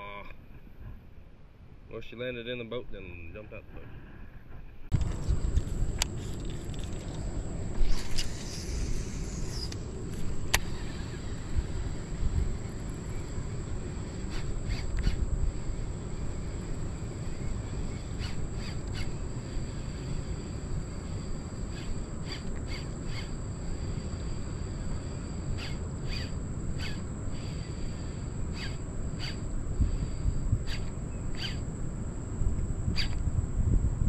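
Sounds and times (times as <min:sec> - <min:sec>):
steady low rumble: 0:04.4 - 0:34.0
bird chirps: 0:08.2 - 0:09.8, 0:16.1 - 0:23.4, 0:25.6 - 0:27.8, 0:28.5 - 0:29.5, 0:30.6 - 0:31.6.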